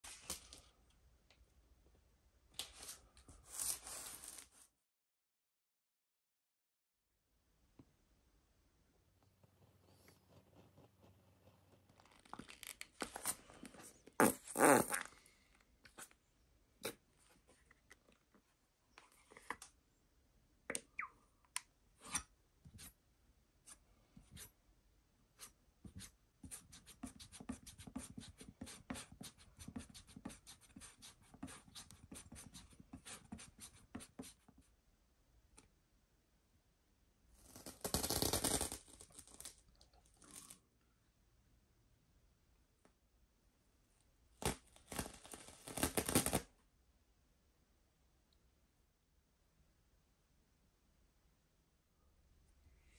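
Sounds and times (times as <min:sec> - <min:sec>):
masking tape ripping: 0:37.4 - 0:39.6, 0:44.4 - 0:46.4.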